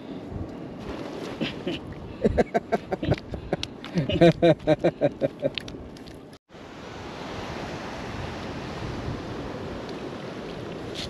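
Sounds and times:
wind: 0.0s - 11.0s
sea surf: 6.5s - 11.0s.

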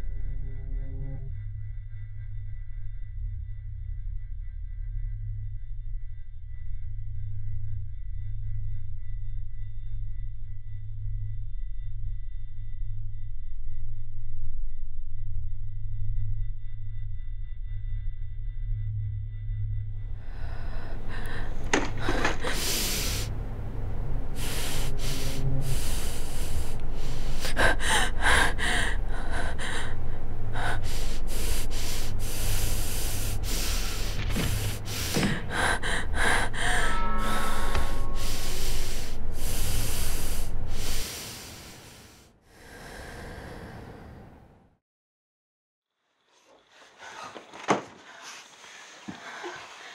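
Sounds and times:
steady low hum: 0.0s - 44.5s
woman breathing hard: 20.1s - 44.4s.

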